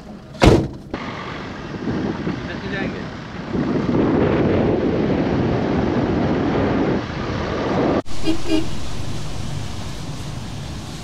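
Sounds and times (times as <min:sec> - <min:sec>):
vehicle road noise: 0:00.0 - 0:11.0
wind on microphone: 0:01.4 - 0:09.2.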